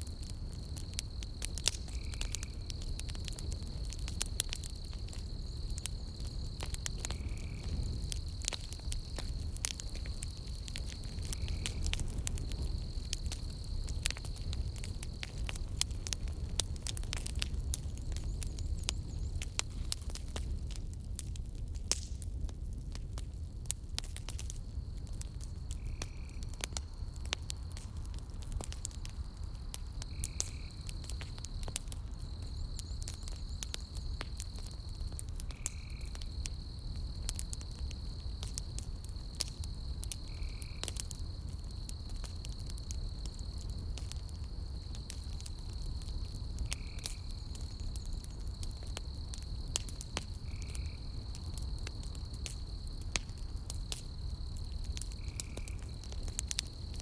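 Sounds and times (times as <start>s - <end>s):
campfire crackling and popping: 0.0s - 57.0s
high insect trill: 29.2s - 56.9s.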